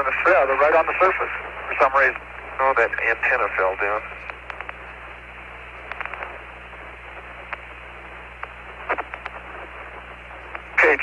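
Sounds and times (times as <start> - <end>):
low hum: 0.0 - 11.0
radio static hiss: 0.0 - 11.0
faint clicks: 4.1 - 10.8.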